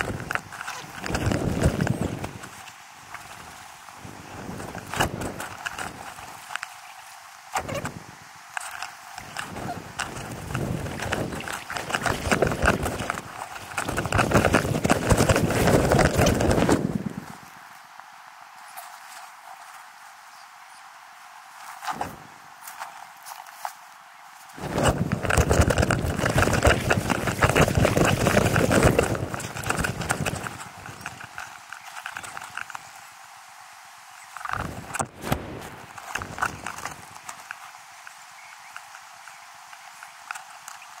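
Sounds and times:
clothing and gear rustling: 0.0s - 8.0s, 8.6s - 17.9s, 18.6s - 20.2s, 21.5s - 33.1s
wading splashes in shallow water: 8.6s - 17.3s.

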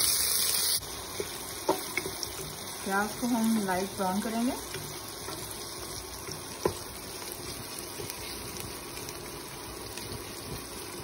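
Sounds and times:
onion sizzling in hot oil: 0.0s - 11.0s.

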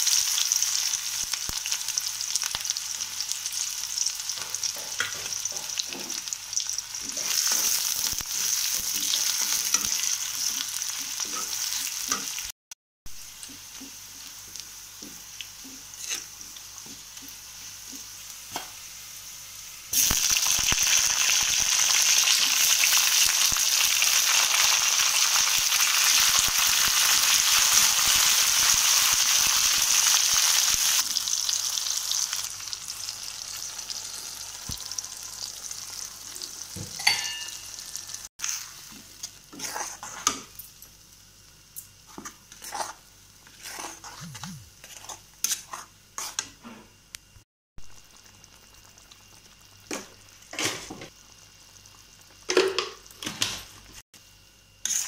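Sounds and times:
food sizzling in hot oil: 0.0s - 46.6s, 47.3s - 55.0s
metal spatula scraping a pan: 11.2s - 12.3s, 15.9s - 16.3s, 37.0s - 40.4s, 42.2s - 44.2s, 44.8s - 46.8s.

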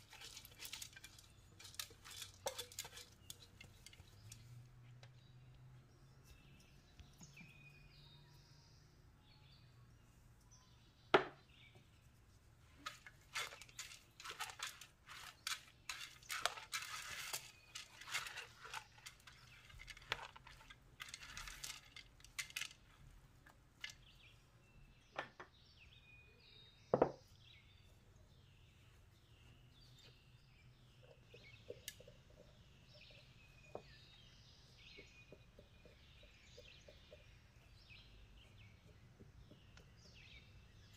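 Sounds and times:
spoon stirring rice in bowl: 0.0s - 4.6s, 12.8s - 24.0s
faint birds chirping: 0.0s - 40.9s.

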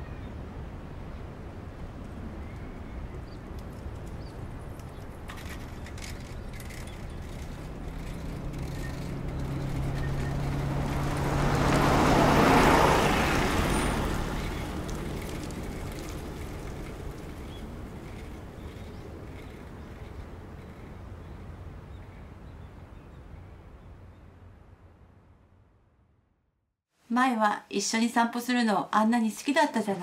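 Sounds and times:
minibus driving past: 0.4s - 23.8s.

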